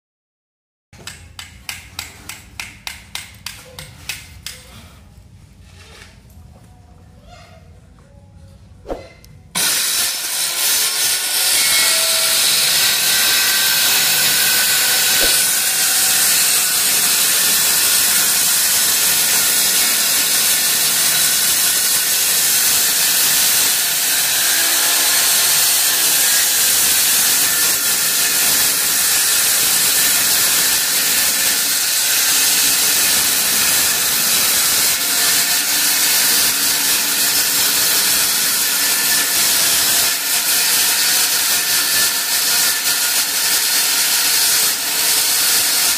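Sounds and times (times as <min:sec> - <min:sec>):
circular saw cutting wood: 0:09.6 - 0:45.9.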